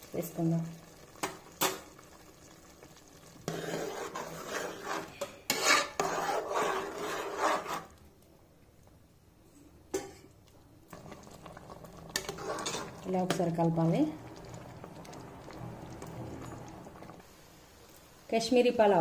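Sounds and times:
metal ladle scraping pot: 3.4s - 8.0s, 12.1s - 13.5s.

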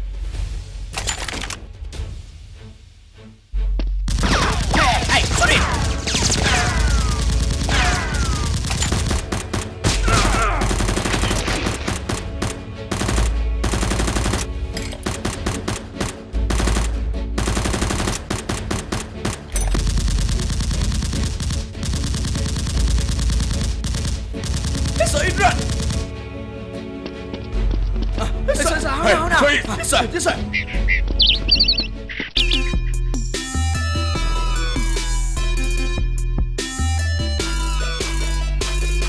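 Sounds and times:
rapid automatic gunfire: 4.1s - 26.1s.

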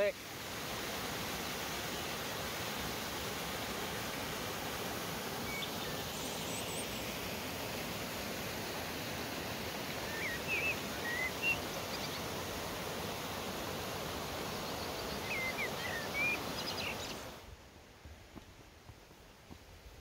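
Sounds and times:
waterfall rushing over rocks: 0.0s - 17.6s
songbird chirping: 5.4s - 7.2s, 9.9s - 12.5s, 14.2s - 17.4s.

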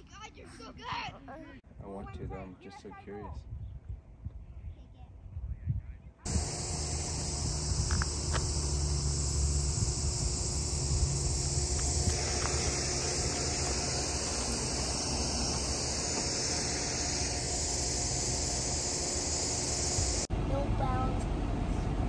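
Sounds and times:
high insect chorus: 6.3s - 20.3s
low rumble: 6.3s - 22.0s.

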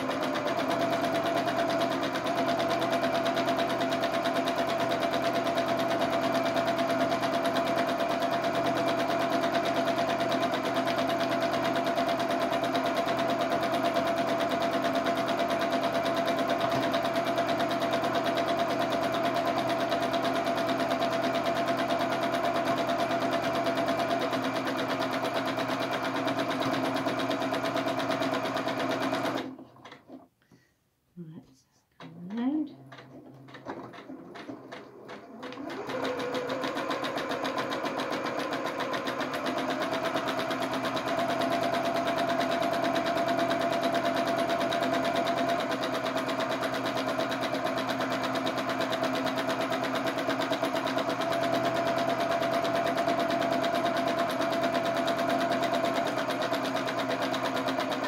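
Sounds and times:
sewing machine stitching rapidly: 0.0s - 30.2s, 32.0s - 58.0s.

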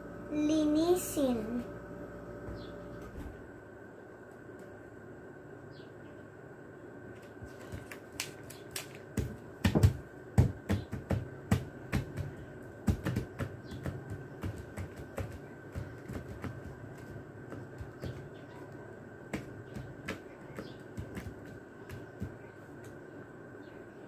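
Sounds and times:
pencil tapping on paper: 7.6s - 18.6s, 19.3s - 23.0s.

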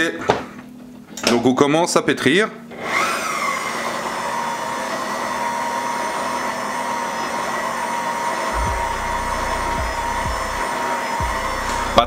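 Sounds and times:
stand mixer motor whine: 2.7s - 12.0s
low thudding: 8.6s - 10.6s.

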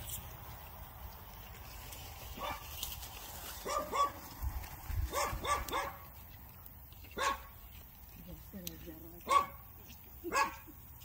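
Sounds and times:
dog barking: 2.4s - 2.6s, 3.6s - 4.2s, 5.1s - 6.0s, 7.2s - 7.5s, 9.2s - 9.6s, 10.3s - 10.6s.

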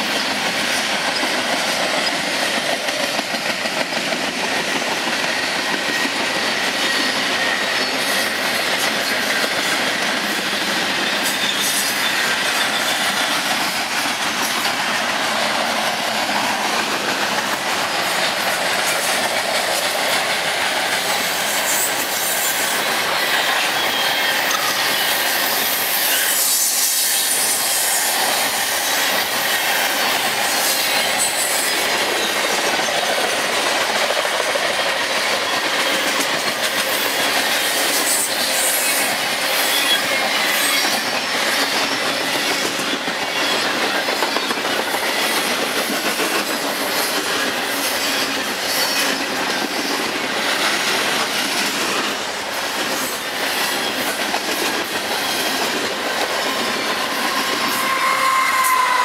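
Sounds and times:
train wheels clattering on rails: 0.0s - 59.0s
high wheel squeal: 11.0s - 13.3s, 21.7s - 33.2s, 38.0s - 44.5s, 56.4s - 59.0s.

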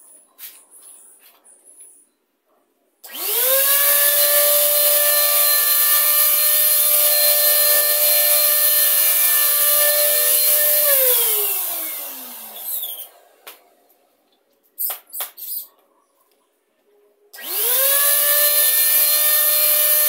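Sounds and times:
power tool motor whining: 3.1s - 13.4s, 17.4s - 20.0s.

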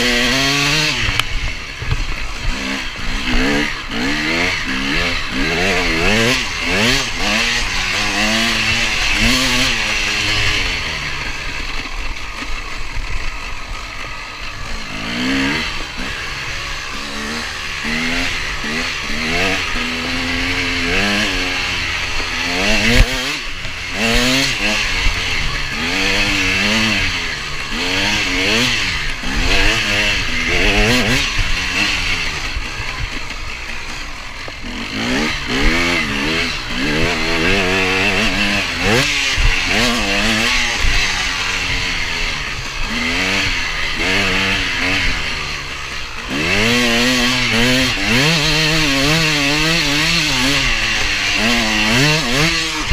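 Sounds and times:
dirt bike engine revving: 0.0s - 52.9s.

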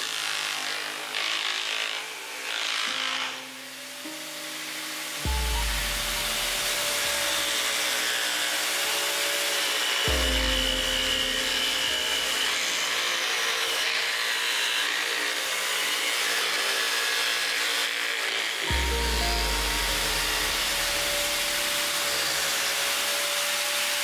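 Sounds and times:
scroll saw cutting plywood: 0.0s - 24.0s
background music: 3.2s - 15.5s, 18.6s - 23.1s.

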